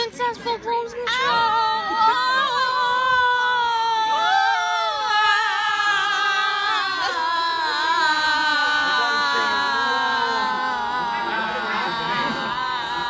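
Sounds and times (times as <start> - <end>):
girls singing together: 4.7 - 13.0.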